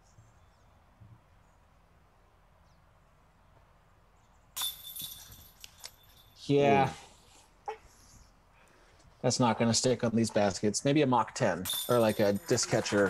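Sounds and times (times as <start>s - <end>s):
faint outdoor background: 0.0s - 13.0s
disc striking basket chains: 4.6s - 6.4s, 11.6s - 13.0s.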